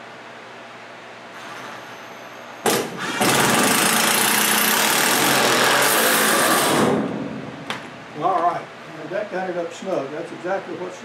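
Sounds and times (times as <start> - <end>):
impact driver hammering: 2.7 - 7.2.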